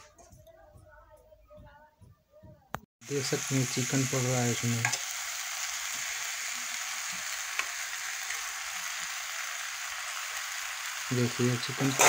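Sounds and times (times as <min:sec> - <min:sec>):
chicken sizzling in a pot: 0:03.0 - 0:12.0.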